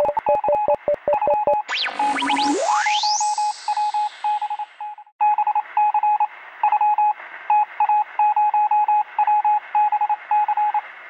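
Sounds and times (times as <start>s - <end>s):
morse code electronic beeps: 0.0s - 5.0s.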